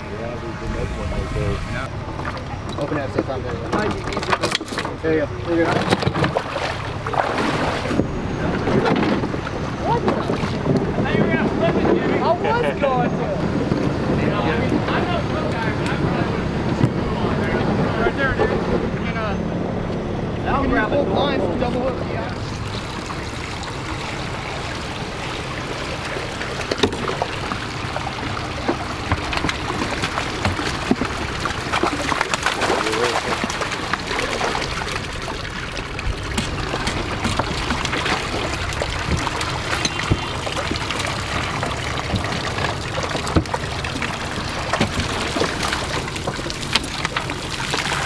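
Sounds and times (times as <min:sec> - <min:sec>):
low engine hum: 0:00.0 - 0:48.0
water pouring and trickling: 0:21.6 - 0:48.0
small splashes and drips: 0:22.4 - 0:48.0.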